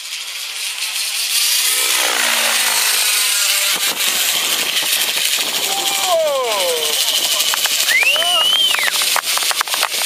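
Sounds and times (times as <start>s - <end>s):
model helicopter rotor noise: 0.0s - 10.0s.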